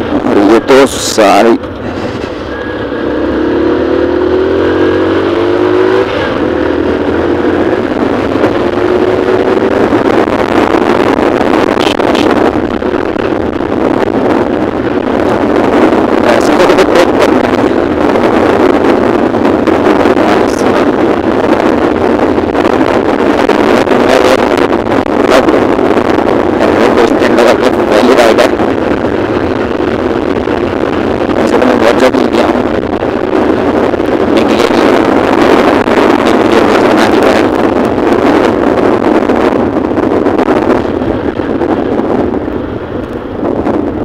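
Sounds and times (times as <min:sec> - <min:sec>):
wind rushing past microphone: 0:00.0 - 0:44.0
motorbike engine accelerating: 0:01.6 - 0:44.0.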